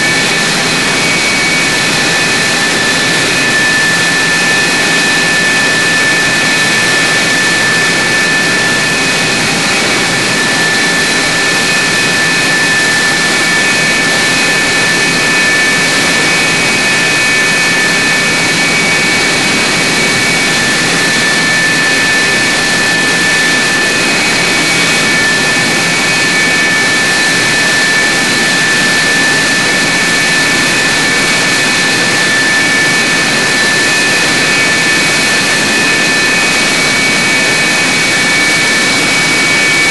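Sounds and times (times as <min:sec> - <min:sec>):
jet engine running with high whine: 0:00.0 - 0:39.9.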